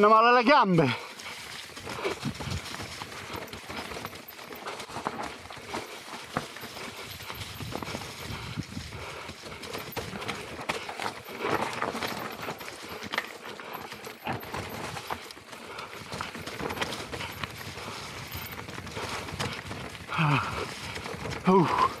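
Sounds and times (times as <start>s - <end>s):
bike rattling and clattering: 0.0s - 22.0s
bike tyres crunching over rocks: 0.0s - 22.0s.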